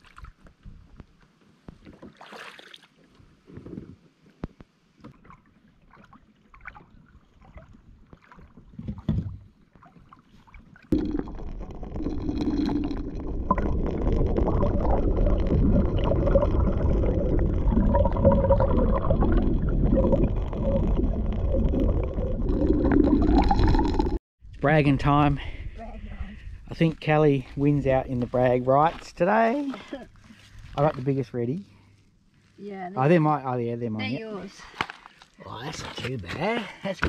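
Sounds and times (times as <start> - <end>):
water lapping: 5.0 - 11.0
water rushing and gurgling: 10.9 - 24.2.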